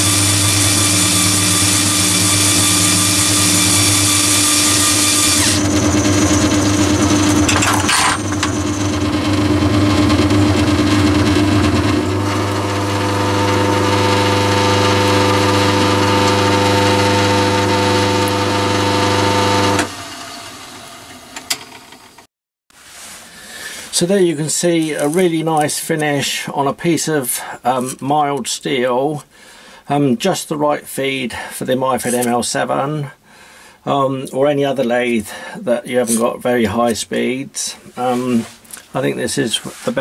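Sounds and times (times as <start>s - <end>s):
lathe turning steel: 0.0s - 21.8s.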